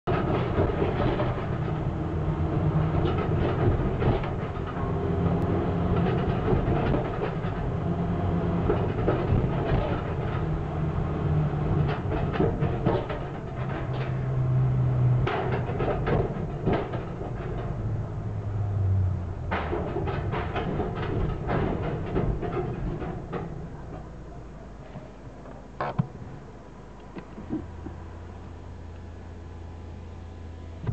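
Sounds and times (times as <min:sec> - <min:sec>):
car engine low rumble: 0:00.0 - 0:30.9
tyres clunking over metal plates: 0:00.1 - 0:02.0, 0:02.6 - 0:07.8, 0:08.5 - 0:18.6, 0:19.4 - 0:25.2.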